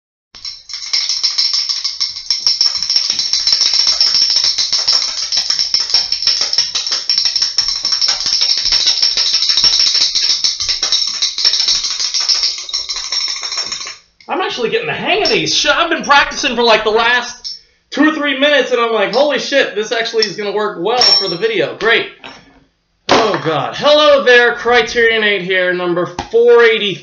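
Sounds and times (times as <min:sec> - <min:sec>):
jingling percussion shaken: 0:00.4 - 0:14.2, 0:15.2 - 0:17.7.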